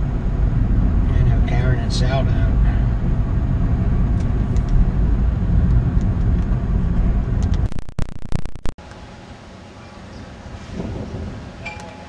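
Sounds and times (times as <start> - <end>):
wind rumbling on microphone: 0.0 - 8.4, 10.5 - 11.7.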